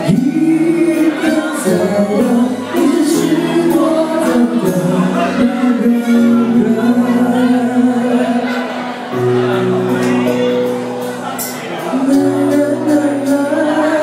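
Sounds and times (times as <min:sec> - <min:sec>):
live band playing: 0:00.0 - 0:14.0
woman singing lead: 0:11.8 - 0:14.0.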